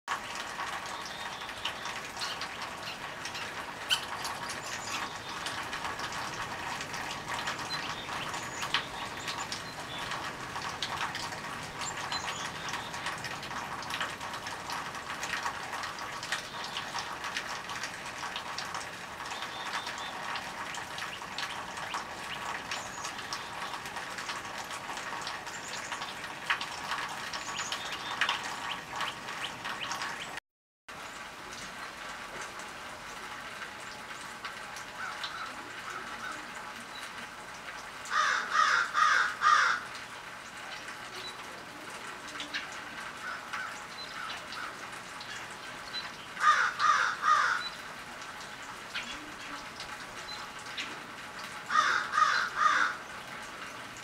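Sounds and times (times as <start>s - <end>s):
steady outdoor hiss: 0.2s - 54.0s.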